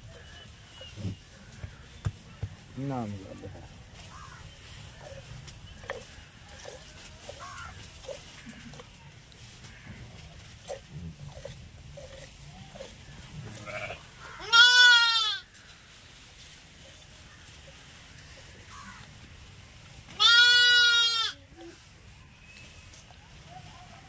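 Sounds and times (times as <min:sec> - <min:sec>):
sheep and goats bleating: 0:13.4 - 0:15.5, 0:20.1 - 0:21.5.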